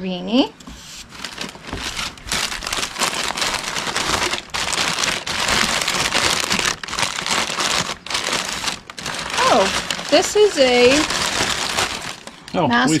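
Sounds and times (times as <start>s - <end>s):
packing paper rustling and crinkling: 0.7s - 13.0s.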